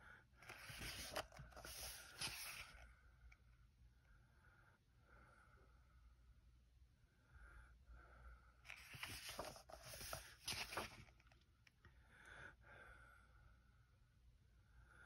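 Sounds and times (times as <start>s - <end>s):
paper page rustling: 0.4s - 2.8s, 8.7s - 11.3s.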